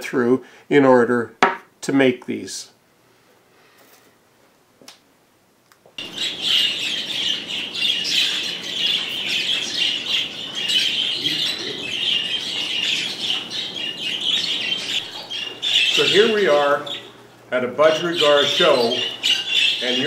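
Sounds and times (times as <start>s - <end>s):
budgerigars chirping and chattering: 6.0s - 20.0s.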